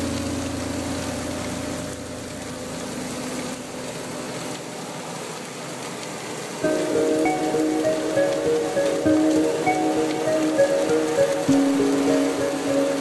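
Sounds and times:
high-pressure water spray hissing: 0.0s - 13.0s
background music: 6.6s - 13.0s.

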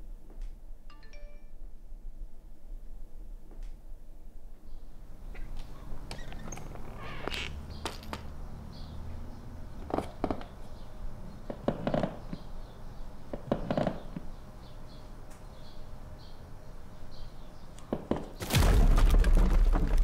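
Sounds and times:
knocks and thumps: 18.0s - 20.0s.

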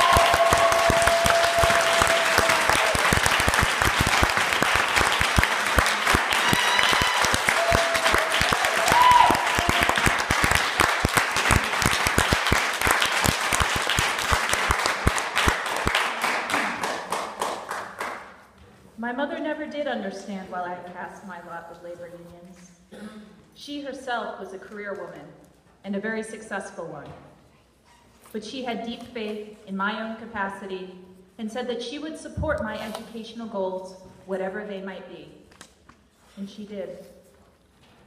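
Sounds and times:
audience applause: 0.0s - 18.2s.

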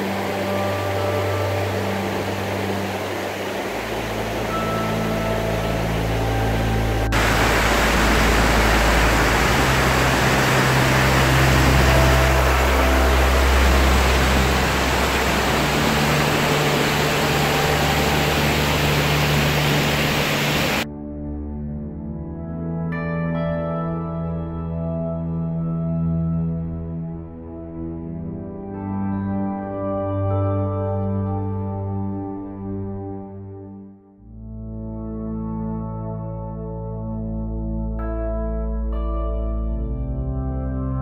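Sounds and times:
water rushing over weir: 0.0s - 20.8s.

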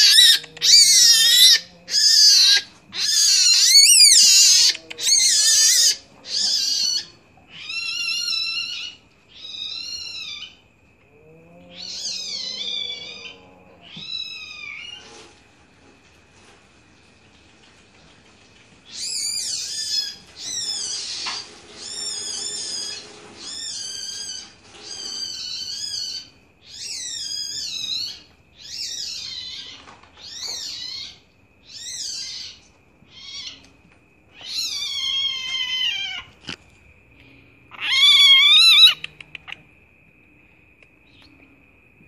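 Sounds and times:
animal cub mewing calls: 0.0s - 10.6s, 37.7s - 39.6s.

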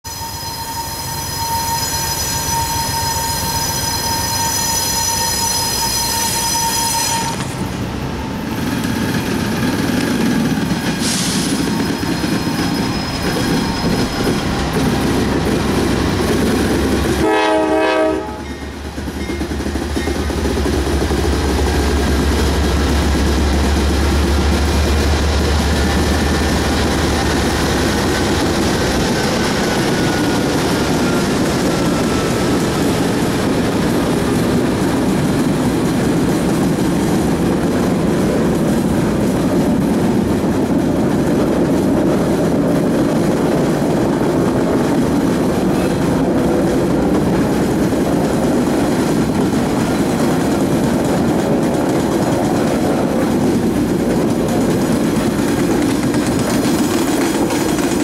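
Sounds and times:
locomotive horn blast: 0.1s - 7.6s, 17.0s - 18.7s.

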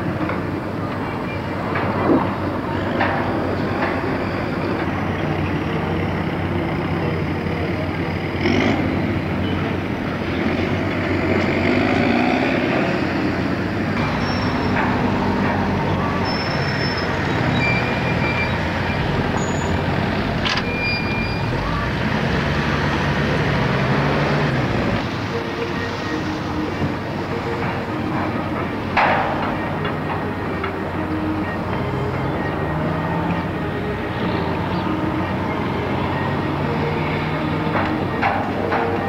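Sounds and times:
diesel machinery engine drone: 0.0s - 39.0s
short high beeps: 20.5s - 21.6s.

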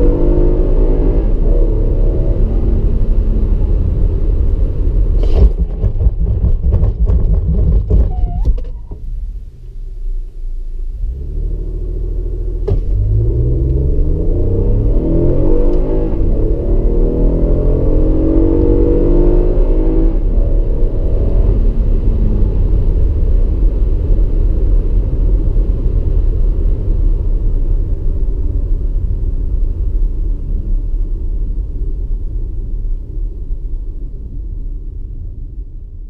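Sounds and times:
car engine revving through gears: 0.0s - 3.2s, 11.1s - 22.5s.

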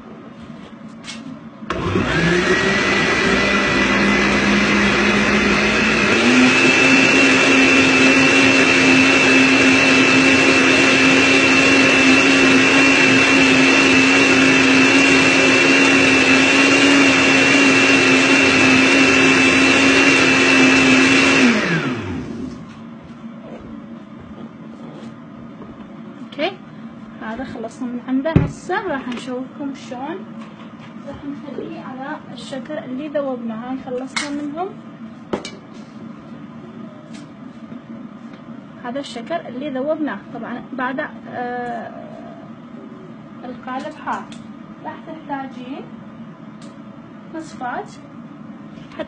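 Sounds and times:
blender running: 1.7s - 22.7s.

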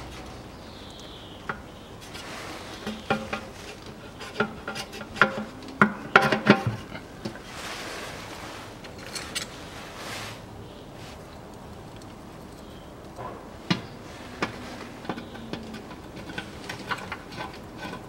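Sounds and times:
rubbing and scraping: 1.5s - 11.2s, 13.7s - 18.0s.

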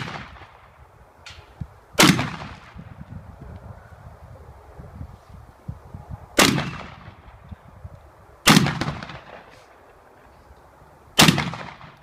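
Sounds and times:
shotgun shots: 0.0s - 0.7s, 2.0s - 2.8s, 6.4s - 7.3s, 8.4s - 9.6s, 11.2s - 12.0s.

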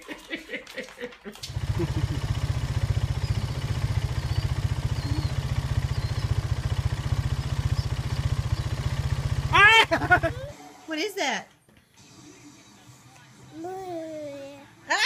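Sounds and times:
motor low pulsing rumble: 1.5s - 10.5s.

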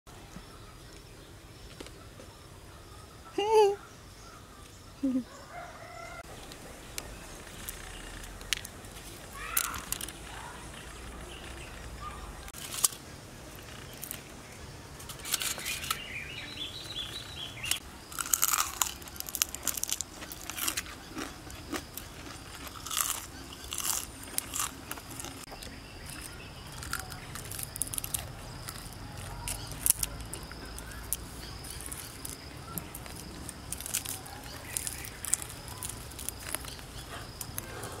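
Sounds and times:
crisp insect shell cracking and crunching: 9.4s - 11.6s, 17.6s - 37.7s.

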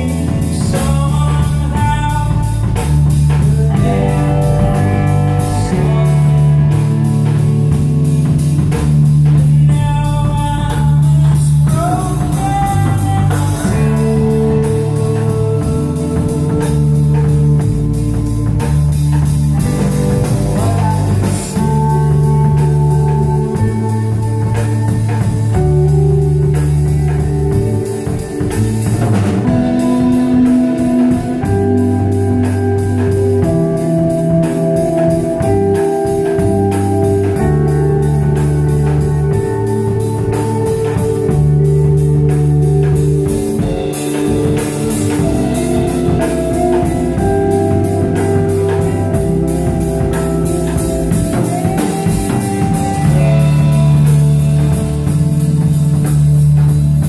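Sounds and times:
deep bass notes: 0.0s - 57.0s
drum kit cymbals: 0.0s - 57.0s
organ-like keyboard chords: 0.0s - 57.0s.

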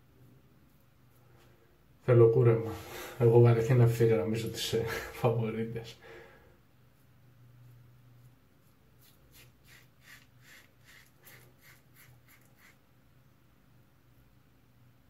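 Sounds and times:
razor scraping stubble: 8.2s - 12.8s.

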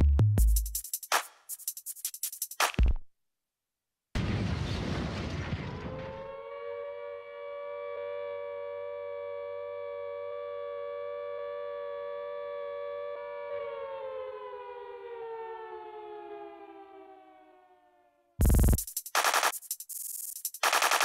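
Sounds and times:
siren tone: 5.5s - 19.5s.

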